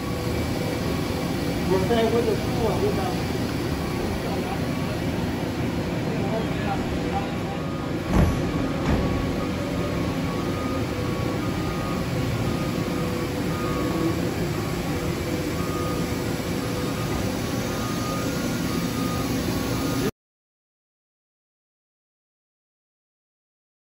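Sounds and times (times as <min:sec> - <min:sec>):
machinery and fans humming: 0:00.0 - 0:20.1.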